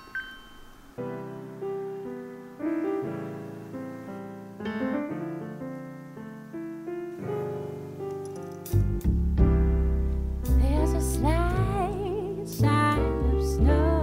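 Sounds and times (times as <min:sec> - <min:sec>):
gentle piano tune: 0:00.0 - 0:14.0.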